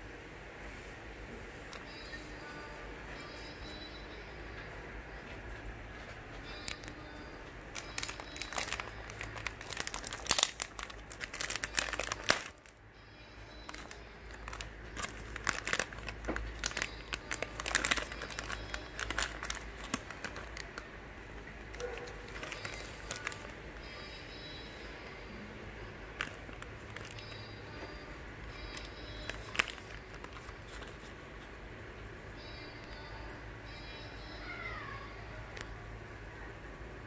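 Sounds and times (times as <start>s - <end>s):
faint low hum: 0.0s - 37.0s
plastic wrapping crinkling: 6.6s - 12.8s, 13.4s - 20.9s, 21.6s - 23.6s, 26.2s - 31.3s.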